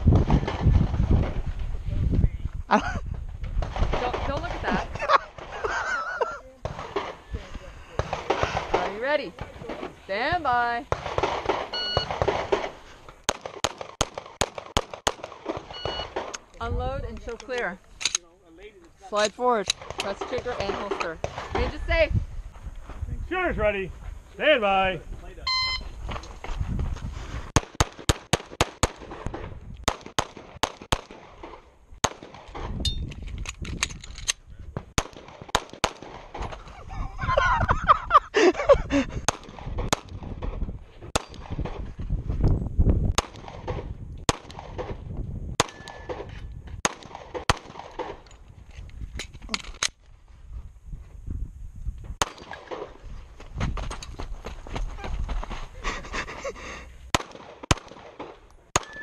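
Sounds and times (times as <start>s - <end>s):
pistol firing rapid shots: 10.9s - 16.3s, 27.6s - 29.2s, 29.9s - 32.6s, 35.0s - 36.4s, 43.2s - 45.0s, 46.8s - 48.2s, 57.1s - 59.0s.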